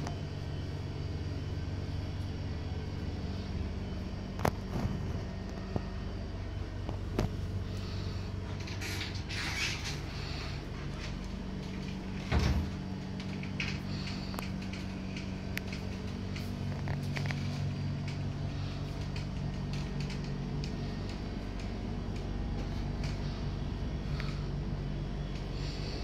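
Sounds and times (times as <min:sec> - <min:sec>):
steady low hum: 0:00.0 - 0:26.0
small clicks and knocks: 0:13.0 - 0:18.3.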